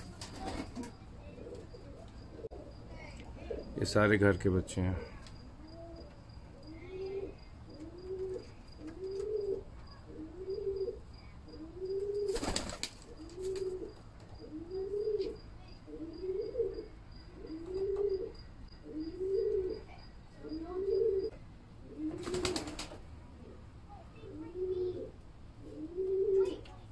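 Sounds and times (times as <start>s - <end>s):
wings flapping: 0.0s - 1.0s, 12.2s - 14.0s, 22.0s - 23.0s
pigeons cooing: 0.0s - 26.7s.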